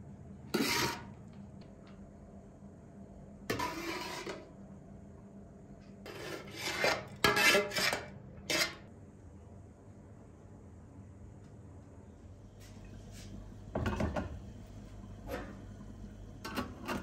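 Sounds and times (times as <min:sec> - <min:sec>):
metal skimmer scraping pot: 0:00.6 - 0:01.1, 0:15.2 - 0:15.6, 0:16.4 - 0:17.0.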